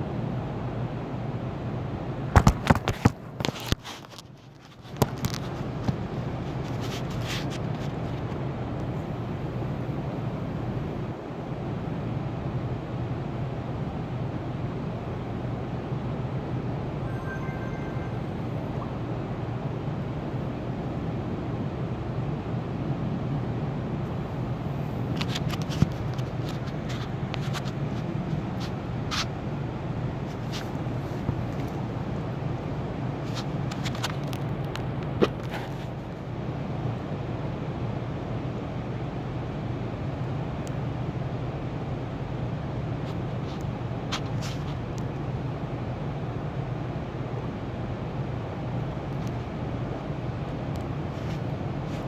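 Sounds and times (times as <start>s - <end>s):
steady low hum: 0.0s - 52.0s
faint clicks and rustles: 2.4s - 9.1s, 25.0s - 29.4s, 33.2s - 36.0s, 50.7s - 52.0s.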